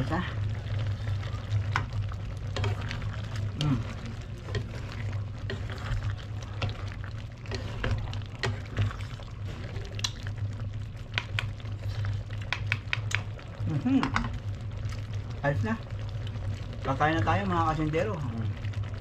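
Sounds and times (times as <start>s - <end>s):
steady low hum: 0.0s - 19.0s
spatula stirring thick stew: 0.6s - 10.2s
spatula tapping pan: 12.5s - 13.3s.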